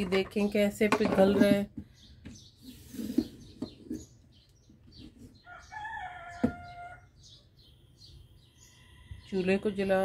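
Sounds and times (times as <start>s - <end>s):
small birds chirping: 0.0s - 10.0s
rooster crowing: 5.5s - 7.1s.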